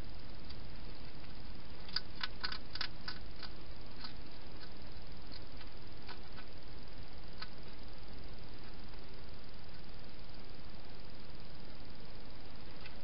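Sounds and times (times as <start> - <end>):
steady hiss: 0.0 - 13.0
hedgehog crunching dry food: 1.8 - 6.5.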